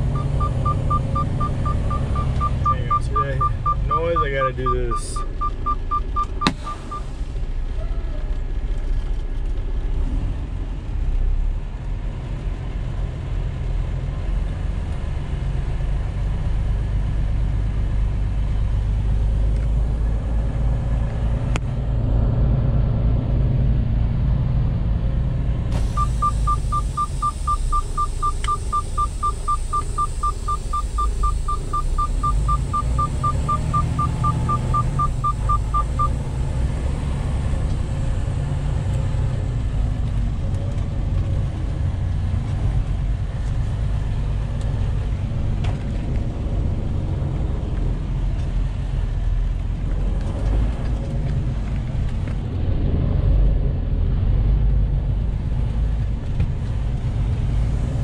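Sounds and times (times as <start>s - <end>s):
rapid electronic warning beeps: 0.0s - 7.1s, 26.0s - 36.2s
truck engine rumbling: 0.0s - 58.0s.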